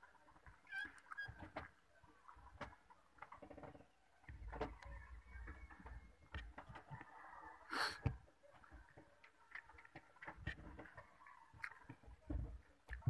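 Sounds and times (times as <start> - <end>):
chewing: 8.6 - 13.0.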